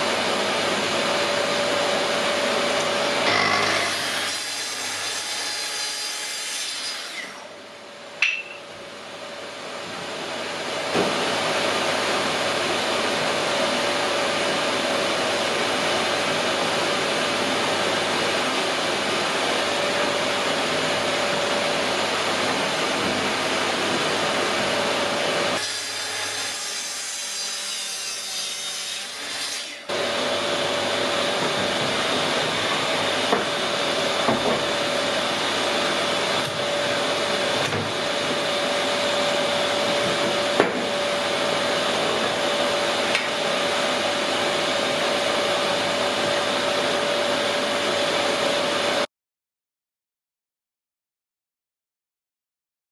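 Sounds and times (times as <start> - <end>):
track saw motor drone: 1.2 - 4.5.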